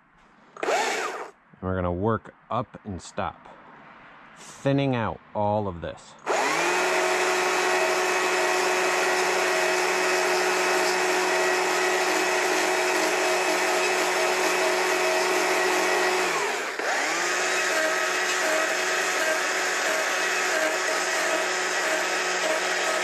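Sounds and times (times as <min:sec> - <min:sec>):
chainsaw running at high revs: 0:00.6 - 0:01.3, 0:06.3 - 0:23.0.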